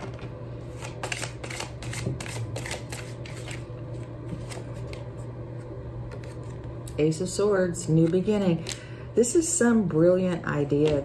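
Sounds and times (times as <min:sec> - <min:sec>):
cards being shuffled by hand: 0:00.0 - 0:05.3
low steady hum: 0:00.0 - 0:11.0.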